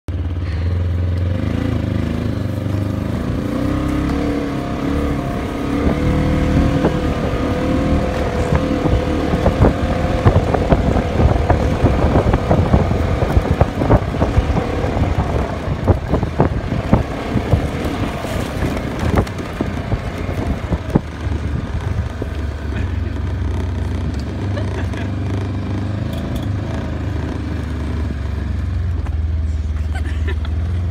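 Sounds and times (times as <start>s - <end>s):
vehicle engine running: 0.1s - 30.9s
knocks and rattles: 5.6s - 27.3s.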